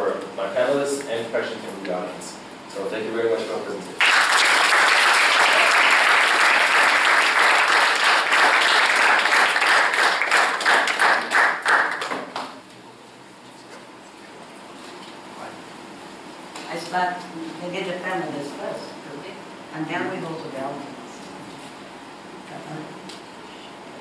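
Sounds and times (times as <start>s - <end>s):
audience applauding: 4.0s - 12.6s.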